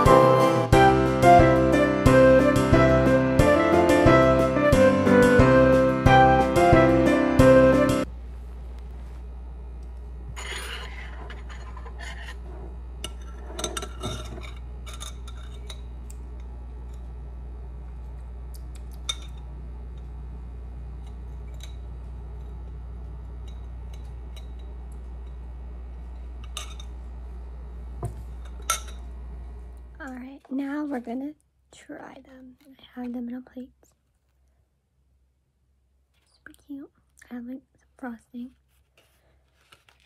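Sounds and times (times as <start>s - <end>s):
steady low hum: 8.0s - 34.0s.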